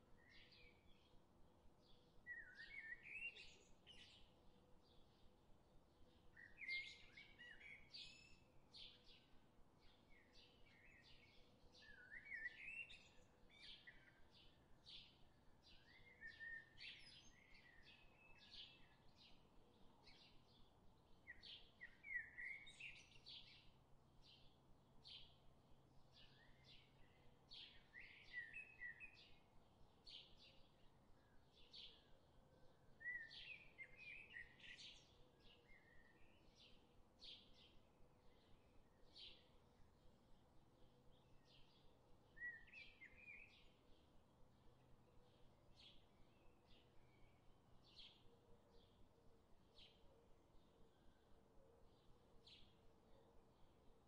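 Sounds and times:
bird chirping: 6.4s - 19.4s, 20.0s - 25.4s, 26.1s - 40.5s, 41.1s - 49.0s.

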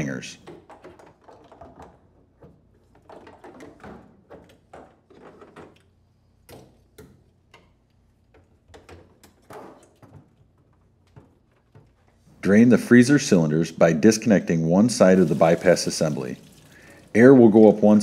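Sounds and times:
plastic fittings clicking and knocking: 0.4s - 12.1s.

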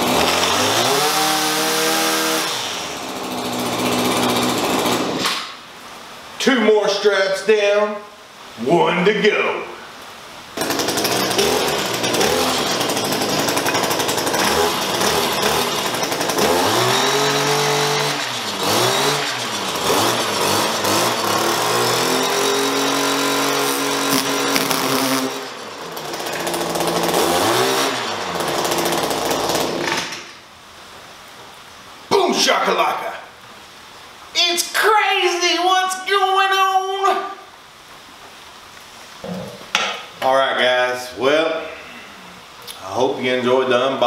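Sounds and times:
two-stroke edger revving: 0.0s - 5.4s, 10.6s - 30.2s
blade cutting plastic strap: 23.7s - 25.3s.

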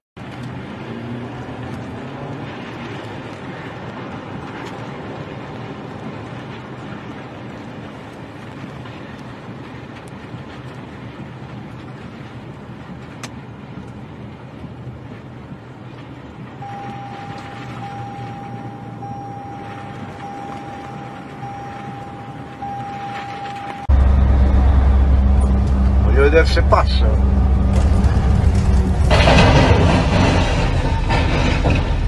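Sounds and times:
driving rain: 0.2s - 32.0s
low rumble: 0.2s - 32.0s
rushing tornado winds: 0.2s - 32.0s
steady electronic tone: 16.6s - 29.8s.

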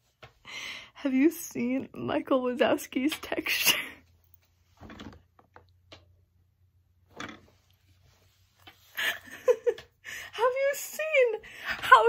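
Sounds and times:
woman laughing: 8.9s - 10.5s.

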